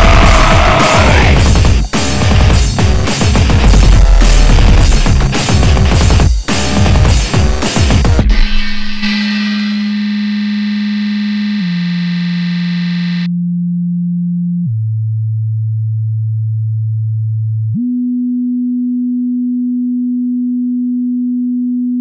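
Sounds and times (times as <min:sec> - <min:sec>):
buzzy distorted note: 0:00.0 - 0:02.6, 0:03.4 - 0:13.3
electronic sine tone: 0:08.2 - 0:15.2, 0:17.3 - 0:22.0.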